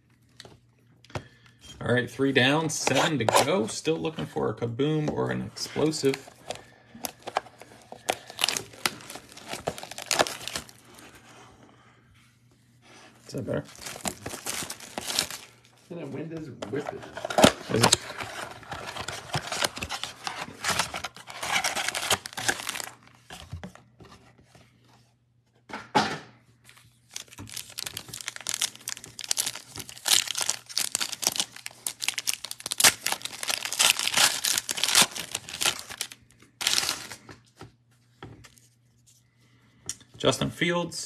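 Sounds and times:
foil wrapper tearing and crinkling: 7.1 - 10.8, 13.7 - 15.6, 17.2 - 23.0, 27.1 - 37.2.

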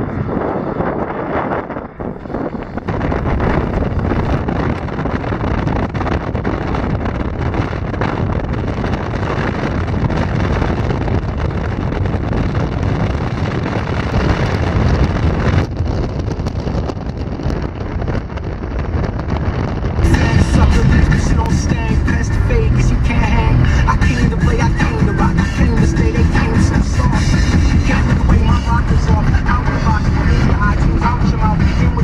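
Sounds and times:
wind rushing over microphone: 0.0 - 32.0
music: 20.0 - 32.0.

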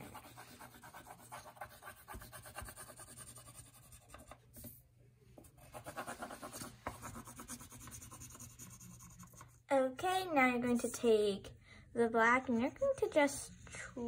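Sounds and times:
oil pastel scratching on paper: 0.0 - 4.4, 5.4 - 9.6.

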